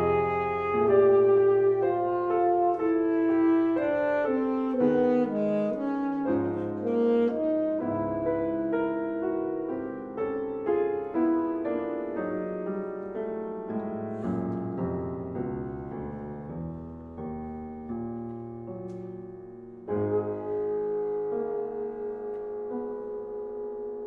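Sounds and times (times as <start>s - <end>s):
saxophone held notes: 0.0s - 8.7s
piano playing: 0.0s - 24.0s.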